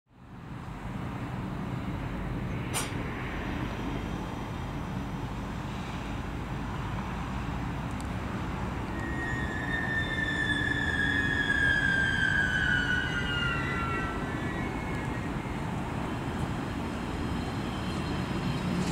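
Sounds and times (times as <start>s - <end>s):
train rolling to a stop: 0.7s - 18.9s
train whine falling in pitch: 8.8s - 16.0s.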